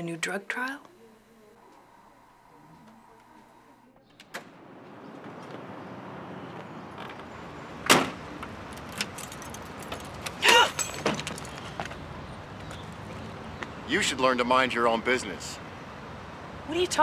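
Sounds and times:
loud clack of car door: 0:07.8 - 0:08.2.

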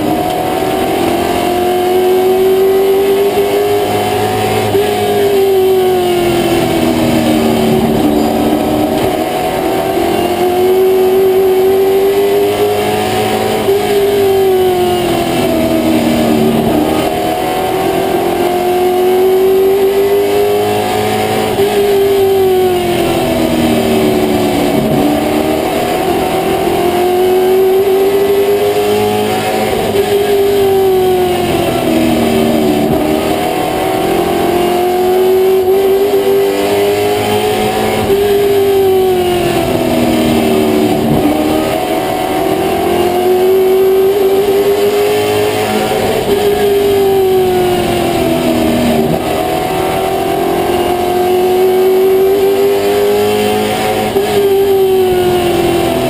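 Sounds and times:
race car engine: 0:00.0 - 0:56.0.

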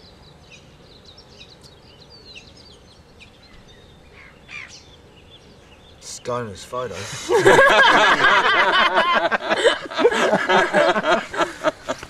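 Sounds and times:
small birds chirping: 0:00.0 - 0:07.4
low background noise: 0:00.0 - 0:12.0.

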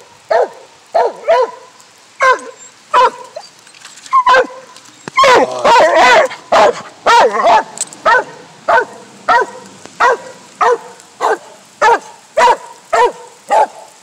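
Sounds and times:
dog barking: 0:00.3 - 0:03.4, 0:04.2 - 0:14.0.

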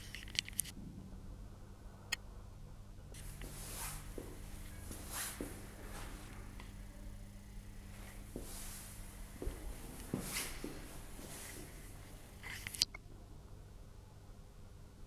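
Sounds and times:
steady low hum: 0:00.0 - 0:15.0
soft rustling: 0:03.2 - 0:12.8.

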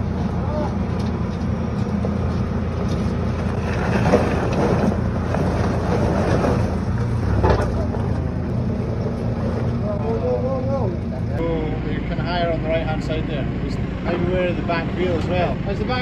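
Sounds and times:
diesel engine under load: 0:00.0 - 0:16.0
stones crunching under wheels: 0:00.6 - 0:09.8.

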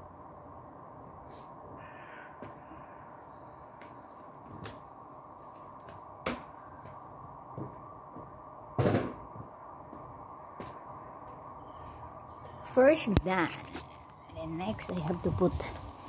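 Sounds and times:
steady background hum: 0:00.0 - 0:16.0
bird calls: 0:01.8 - 0:04.2
sharp knocks: 0:08.8 - 0:09.2.

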